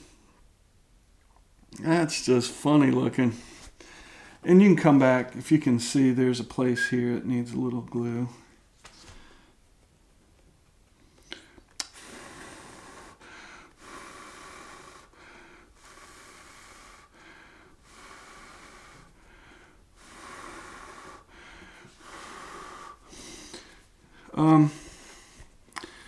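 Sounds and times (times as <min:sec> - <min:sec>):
person breathing: 0:03.3 - 0:04.4, 0:08.3 - 0:09.6, 0:11.1 - 0:26.0.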